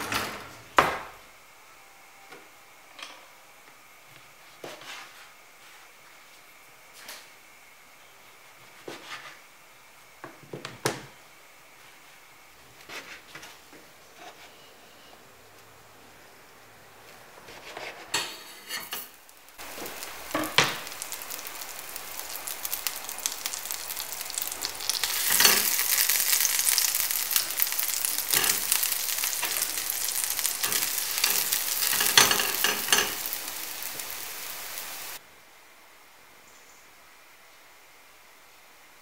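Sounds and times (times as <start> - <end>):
bread sizzling in butter: 17.5 - 35.2.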